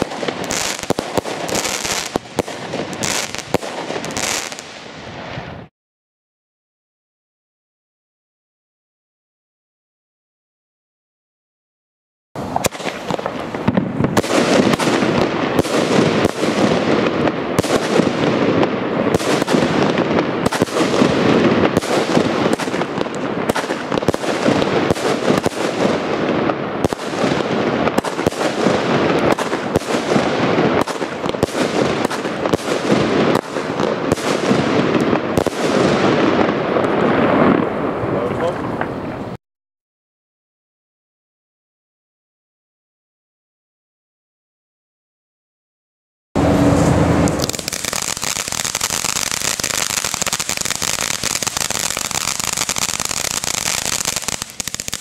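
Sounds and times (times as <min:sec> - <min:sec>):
constant firework din: 0:00.0 - 0:05.7, 0:12.4 - 0:39.4, 0:46.4 - 0:55.0
firework bangs: 0:00.0 - 0:05.7, 0:12.4 - 0:39.4, 0:46.4 - 0:55.0.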